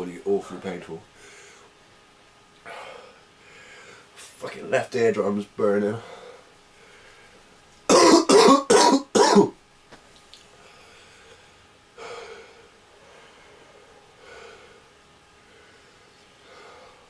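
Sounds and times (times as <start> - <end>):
quiet breath: 2.7 - 4.1, 6.0 - 7.5, 10.6 - 17.0
man coughing hard: 7.9 - 9.6.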